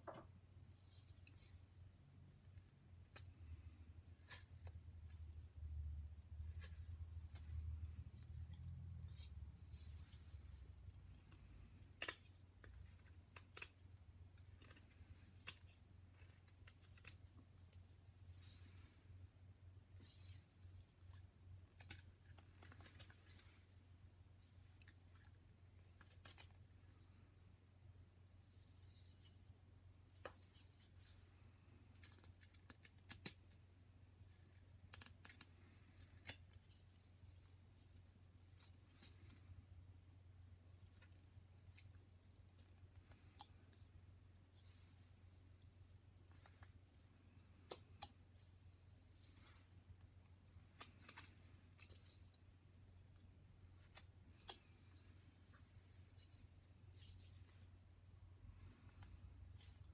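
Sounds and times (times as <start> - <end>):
low steady hum: 0.0 - 59.9
knife carving wood: 2.3 - 19.1, 34.3 - 38.0.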